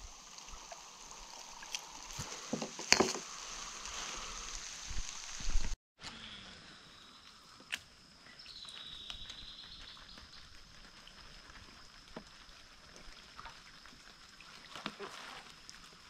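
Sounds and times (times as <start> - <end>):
steady high insect tone: 6.1 - 14.5.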